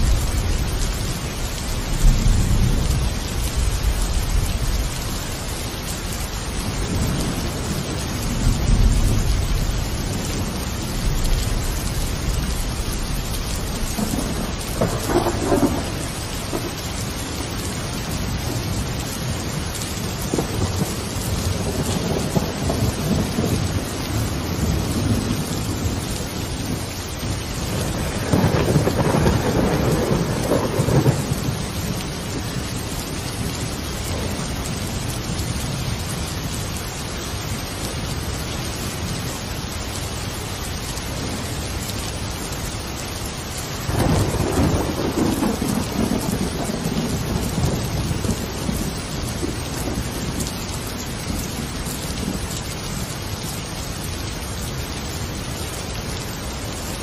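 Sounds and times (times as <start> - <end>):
thunder rumbling: 0.0 - 5.4, 6.2 - 36.2, 43.8 - 52.4
steady rain: 0.0 - 57.0.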